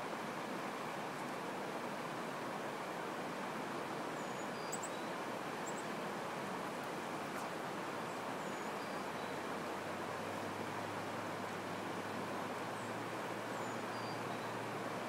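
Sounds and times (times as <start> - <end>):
river water rushing over rocks: 0.0 - 15.0
bird chirping: 4.2 - 5.8.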